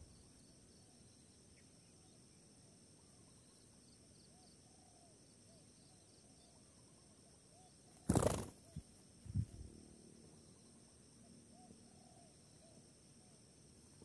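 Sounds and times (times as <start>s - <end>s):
high insect drone: 0.0s - 14.0s.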